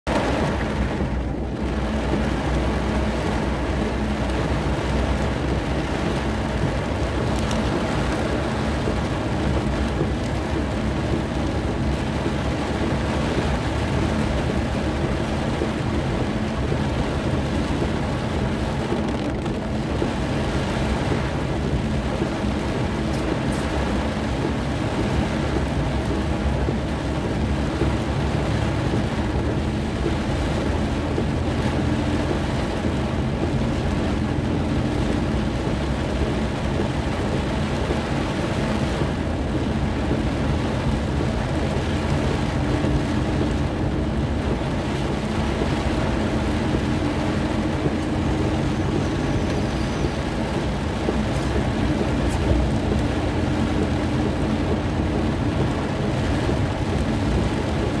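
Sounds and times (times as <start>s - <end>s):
heavy rain drumming on car roof: 0.0s - 58.0s.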